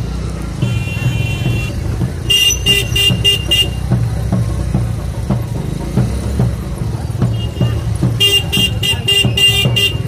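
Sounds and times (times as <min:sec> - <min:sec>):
road traffic rumble: 0:00.0 - 0:10.0
vehicle horn tooting: 0:07.3 - 0:10.0.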